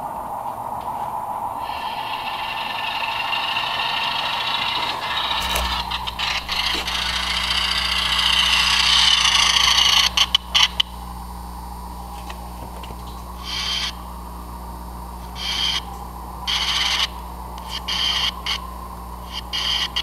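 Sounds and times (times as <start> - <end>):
low steady hum: 0.0 - 20.0
model train whirring on track: 0.8 - 10.8, 16.5 - 18.6.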